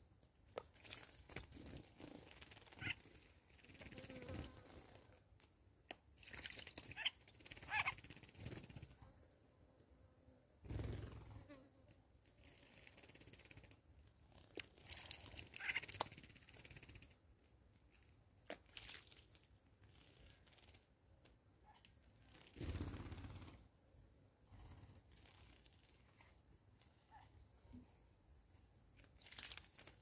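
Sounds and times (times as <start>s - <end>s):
birds splashing in water: 29.2s - 30.0s.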